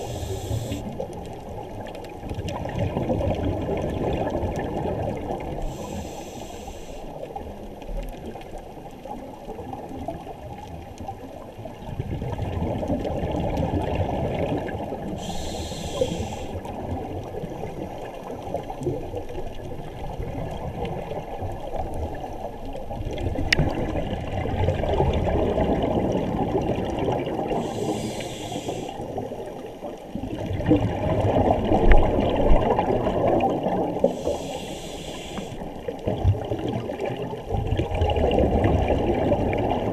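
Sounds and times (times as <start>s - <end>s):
diver inhaling through regulator: 0.0s - 1.0s, 5.6s - 7.2s, 15.2s - 16.6s, 27.5s - 29.2s, 34.0s - 35.7s
exhaled bubbles gurgling: 0.0s - 39.9s.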